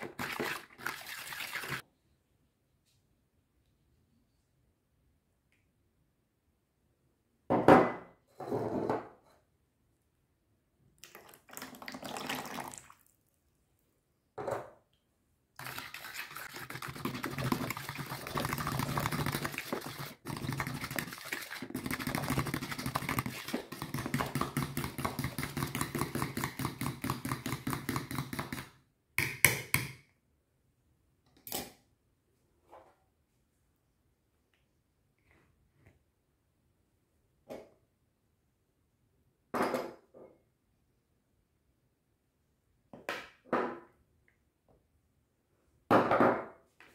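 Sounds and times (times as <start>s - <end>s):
fork whisking batter in bowl: 0.0s - 1.8s, 15.6s - 28.8s.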